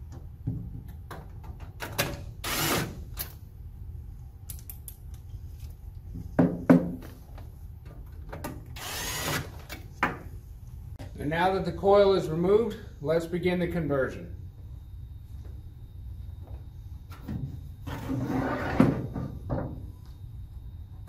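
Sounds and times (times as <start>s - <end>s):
cordless drill whining: 8.8s - 9.5s.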